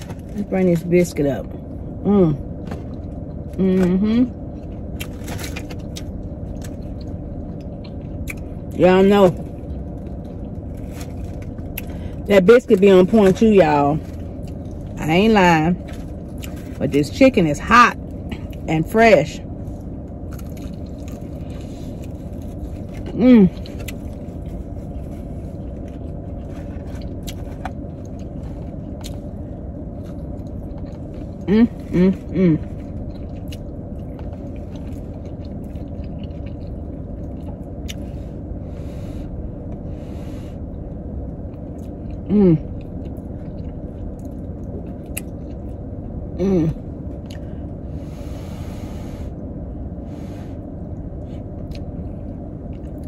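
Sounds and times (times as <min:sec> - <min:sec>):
air conditioning running: 0:00.0 - 0:53.0
crunchy chewing of fried chicken: 0:04.4 - 0:08.8, 0:09.4 - 0:12.3, 0:15.8 - 0:17.2, 0:19.6 - 0:46.1.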